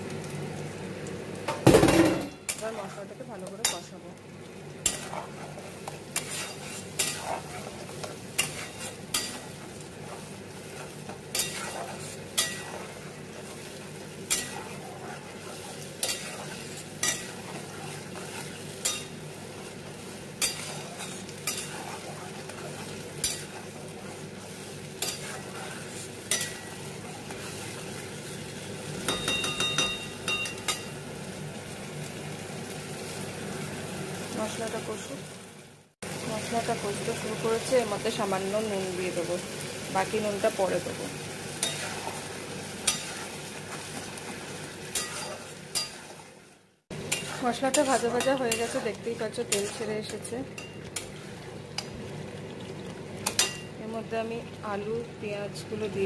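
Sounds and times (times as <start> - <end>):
oil sizzling: 0.0 - 56.0
spatula scraping pan: 4.8 - 28.0, 41.6 - 51.4
spatula clacking against pan: 16.0 - 19.1, 29.1 - 30.9.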